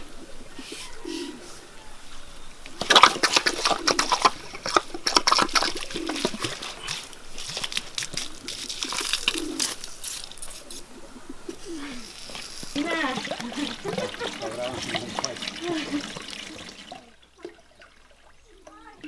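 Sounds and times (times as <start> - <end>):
dove cooing: 0.0 - 2.1, 3.0 - 4.7, 5.4 - 7.3, 8.1 - 10.0, 10.6 - 17.2
hose water spattering on leaves: 2.8 - 10.8, 12.0 - 17.1.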